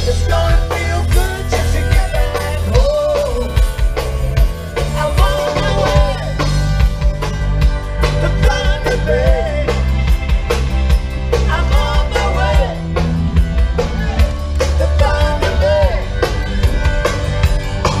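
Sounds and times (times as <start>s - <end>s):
person singing: 0.0s - 3.8s, 4.8s - 6.6s, 8.0s - 9.9s, 11.4s - 13.1s, 14.6s - 16.4s
drum kit beat: 0.0s - 18.0s.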